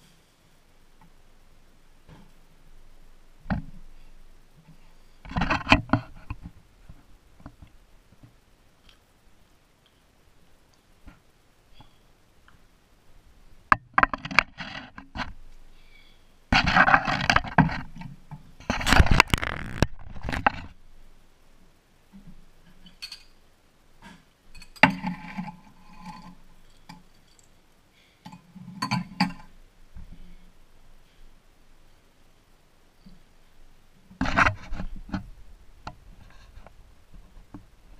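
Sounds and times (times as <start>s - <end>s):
scraping and rustling: 3.5s - 9.0s, 14.0s - 20.8s, 34.1s - 37.9s.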